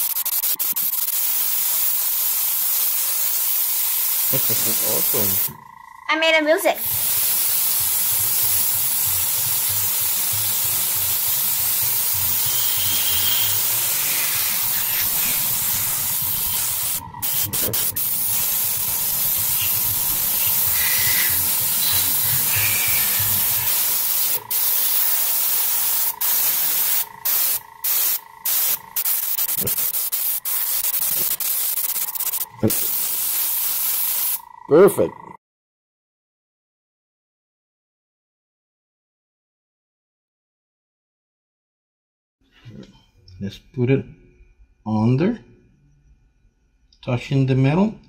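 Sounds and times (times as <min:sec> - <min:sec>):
airbrush air hiss: 0:00.0 - 0:05.6, 0:06.8 - 0:34.4.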